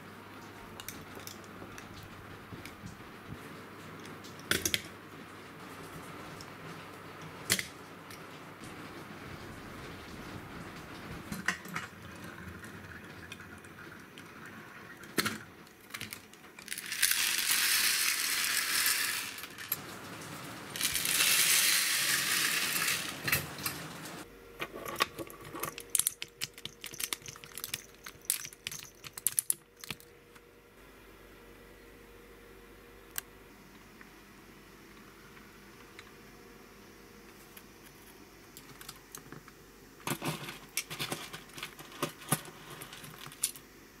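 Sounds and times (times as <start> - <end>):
plastic toy parts clicking: 25.6 - 30.0.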